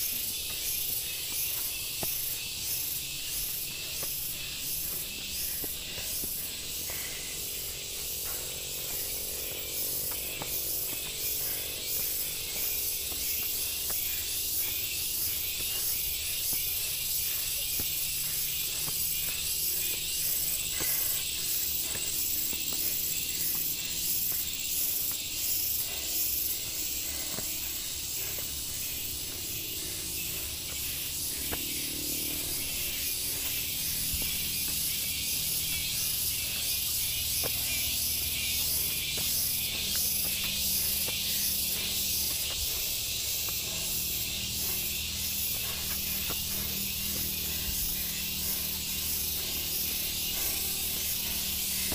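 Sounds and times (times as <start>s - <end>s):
cicada chorus: 0.0s - 51.9s.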